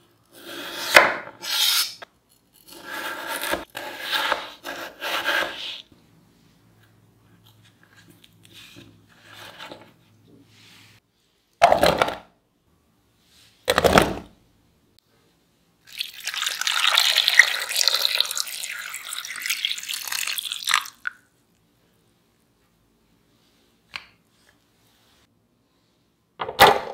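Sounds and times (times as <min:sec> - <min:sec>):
water pouring into saucepan: 0:15.9 - 0:21.0.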